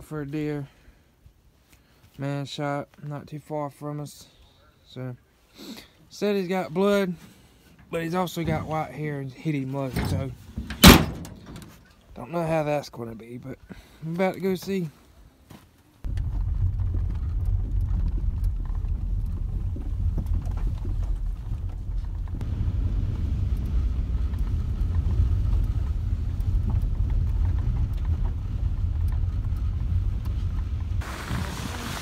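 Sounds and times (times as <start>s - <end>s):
vehicle engine and tyres rumbling: 7.8s - 12.3s, 16.0s - 32.0s
wind noise hiss: 16.1s - 32.0s.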